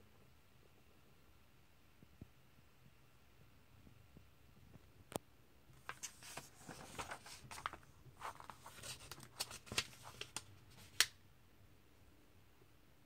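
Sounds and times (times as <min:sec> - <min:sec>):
paper pages turning: 0:05.8 - 0:11.2
paper snap: 0:05.9 - 0:11.2.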